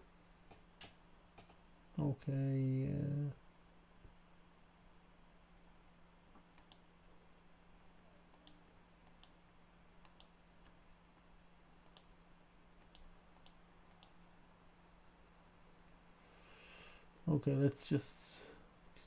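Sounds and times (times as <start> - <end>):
low electrical hum: 0.0 - 19.0
computer mouse clicks: 6.4 - 6.9, 8.3 - 9.4, 10.0 - 10.4, 11.8 - 12.1, 12.8 - 14.2.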